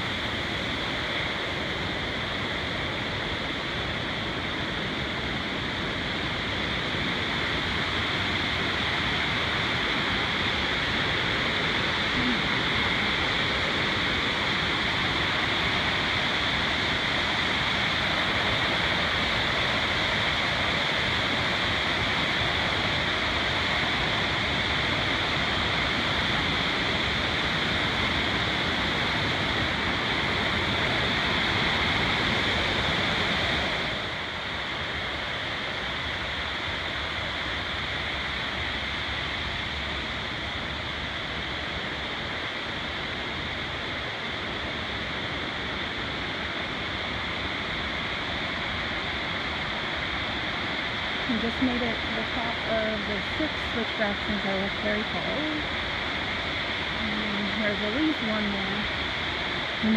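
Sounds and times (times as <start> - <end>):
water cascading over rocks: 0.0 - 59.9.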